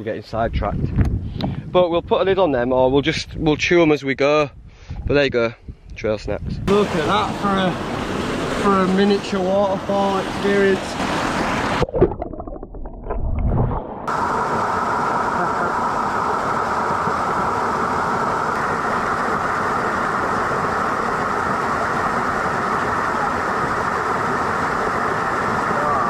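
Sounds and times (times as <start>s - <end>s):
waterfall splashing into pool: 6.7s - 26.0s.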